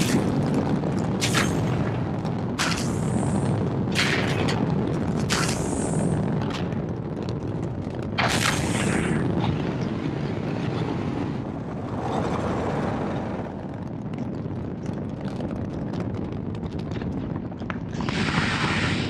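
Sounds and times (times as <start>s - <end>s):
rocket blast: 0.0s - 6.4s, 8.1s - 10.2s, 18.0s - 19.0s
rocket engines rumbling and crackling: 0.0s - 19.0s.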